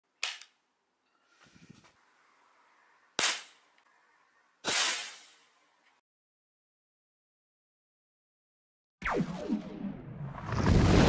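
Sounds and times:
air pistol shots: 3.2s - 3.6s, 4.6s - 5.4s.

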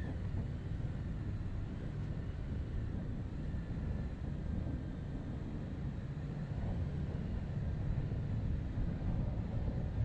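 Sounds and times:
car road and wind noise: 0.0s - 10.0s.

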